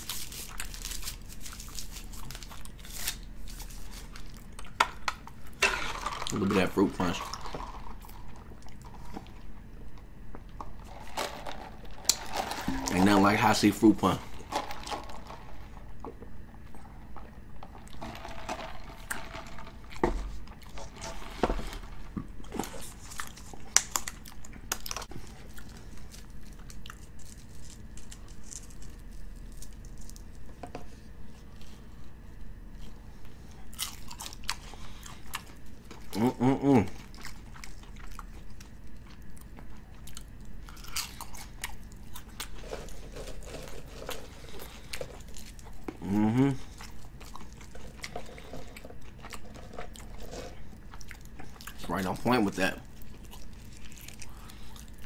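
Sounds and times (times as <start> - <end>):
chewing and crunching fries: 0.0 - 55.0
person humming: 36.2 - 37.0, 46.0 - 46.7.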